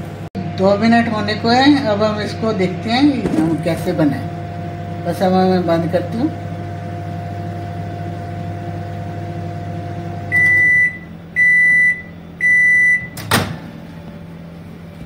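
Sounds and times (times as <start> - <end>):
microwave oven humming: 0.0 - 15.0
microwave beeping: 3.0 - 15.0.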